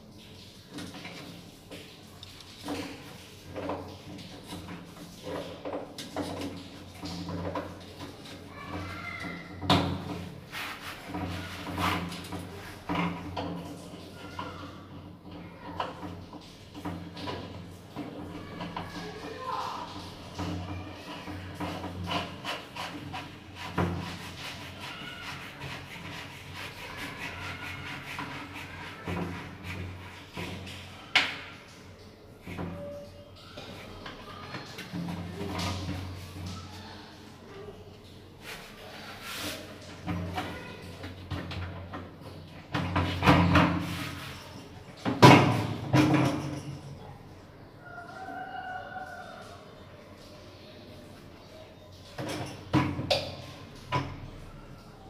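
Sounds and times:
plastic knocks and scrapes: 0:00.7 - 0:31.6.

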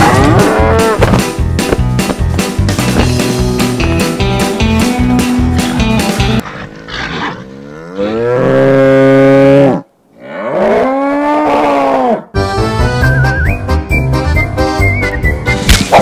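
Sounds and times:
bull bellowing: 0:00.0 - 0:01.2, 0:06.3 - 0:12.3.

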